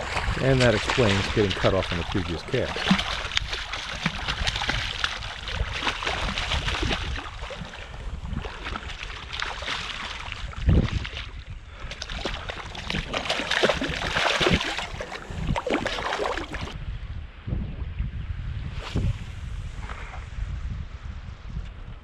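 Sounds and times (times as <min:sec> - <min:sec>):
loud splash: 0:00.0 - 0:07.8, 0:12.2 - 0:16.8
fish thrashing and splashing: 0:00.0 - 0:16.8
wind rumble on microphone: 0:00.0 - 0:22.0.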